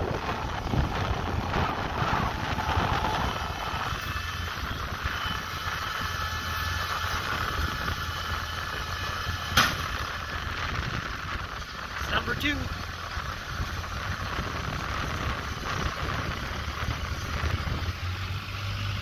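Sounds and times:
tractor engine running: 0:00.0 - 0:19.0
thin high whine: 0:01.6 - 0:12.8
tailgate clanking shut: 0:09.5 - 0:09.9.

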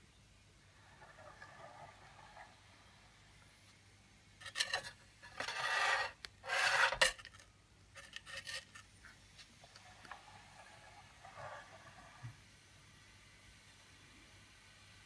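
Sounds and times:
metal scraping and rubbing: 0:04.4 - 0:07.4, 0:08.0 - 0:08.9, 0:09.8 - 0:12.3.

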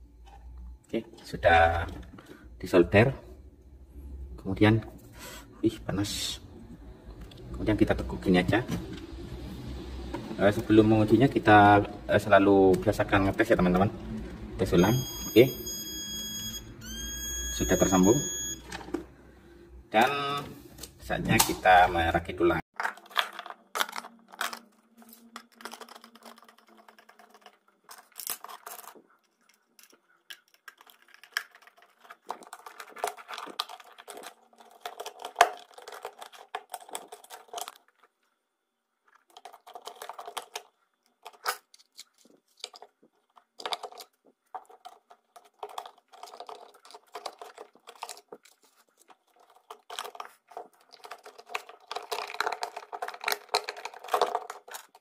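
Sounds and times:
plastic parts clicking and knocking: 0:22.7 - 0:38.3, 0:39.0 - 0:55.0.

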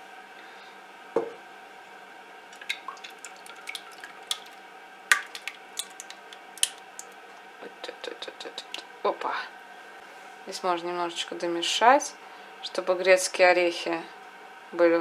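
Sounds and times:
knock: 0:01.2 - 0:01.4
drips and splashes: 0:02.5 - 0:07.5
thick liquid pouring: 0:02.5 - 0:07.5.

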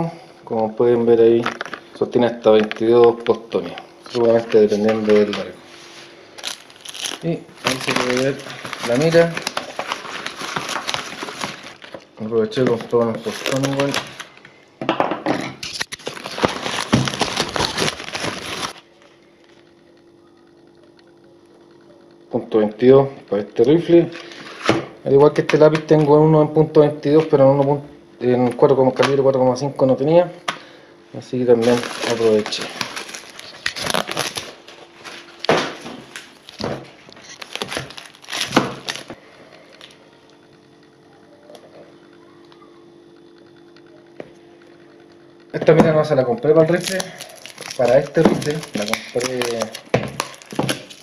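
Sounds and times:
faint steady hum: 0:00.0 - 0:51.0
packing paper crinkling: 0:01.4 - 0:14.4, 0:15.6 - 0:19.6, 0:31.5 - 0:40.0, 0:46.5 - 0:51.0
cardboard rustling: 0:04.2 - 0:12.0, 0:12.6 - 0:14.3, 0:16.0 - 0:18.8, 0:31.6 - 0:39.2.

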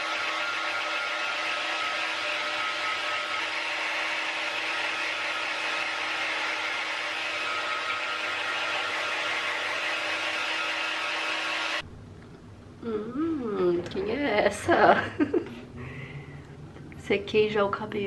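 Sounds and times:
hair dryer blowing air: 0:00.0 - 0:11.8.

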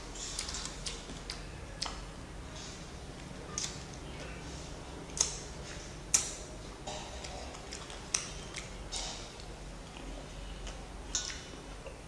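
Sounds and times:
low background hum: 0:00.0 - 0:12.0
wet lip-smacking clicks: 0:05.1 - 0:05.4, 0:06.1 - 0:06.4.

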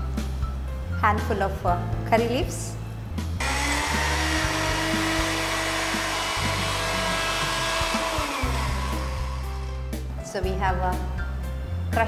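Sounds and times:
electric mixer grinder whirring: 0:03.4 - 0:09.9.

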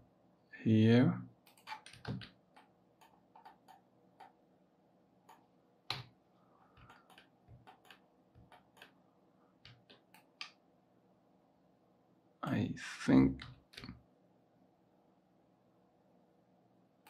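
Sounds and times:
mouse and keyboard clicks: 0:01.5 - 0:04.4, 0:06.8 - 0:09.0, 0:09.6 - 0:10.6.

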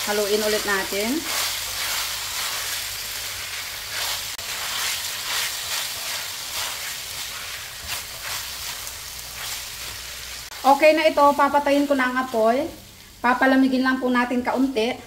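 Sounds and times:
meat sizzling in a pan: 0:00.0 - 0:15.0
wooden spatula scraping a pan: 0:00.2 - 0:10.5.

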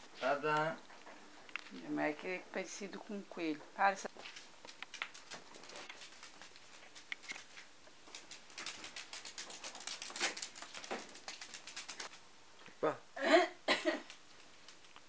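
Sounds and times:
dog claws clicking on hardwood floor: 0:04.2 - 0:12.2.

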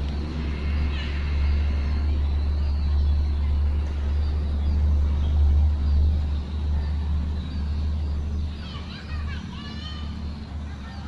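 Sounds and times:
low rumble: 0:00.0 - 0:08.6.

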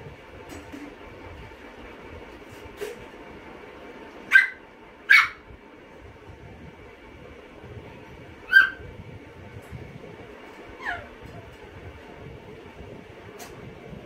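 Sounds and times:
steady background hum: 0:00.0 - 0:14.0
small dogs yapping: 0:04.3 - 0:05.4, 0:08.5 - 0:08.8, 0:10.8 - 0:11.1.

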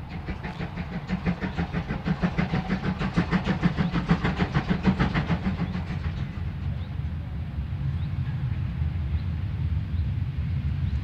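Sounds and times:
steam locomotive exhaust beats: 0:00.0 - 0:11.0.

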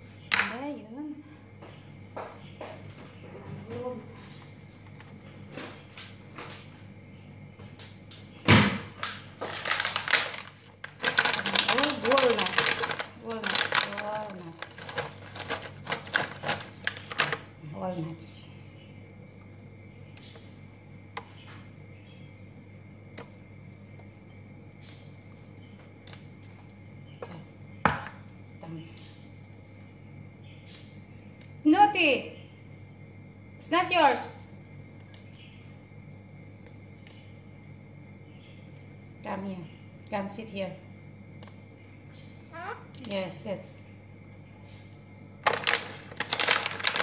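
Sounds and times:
steady low hum: 0:00.0 - 0:47.0
door thump: 0:08.5 - 0:08.9
plastic packet rustling: 0:09.0 - 0:17.5, 0:45.4 - 0:47.0.

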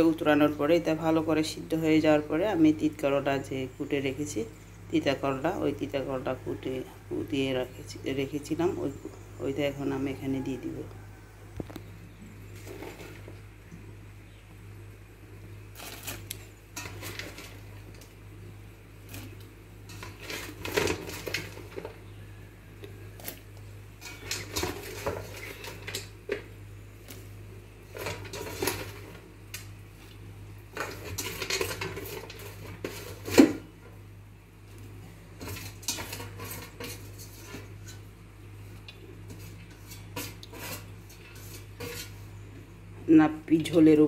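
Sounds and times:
metal utensil scraping metal pot: 0:15.8 - 0:17.7, 0:19.1 - 0:22.0, 0:24.0 - 0:26.4, 0:27.9 - 0:29.2, 0:30.8 - 0:33.7, 0:35.4 - 0:38.1, 0:39.2 - 0:42.4.

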